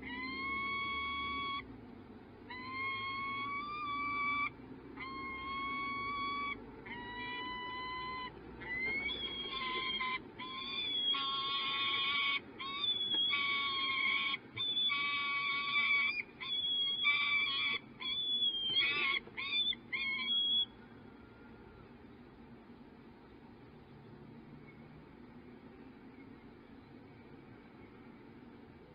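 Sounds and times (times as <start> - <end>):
falcons calling: 0.0 - 1.7, 2.4 - 20.9.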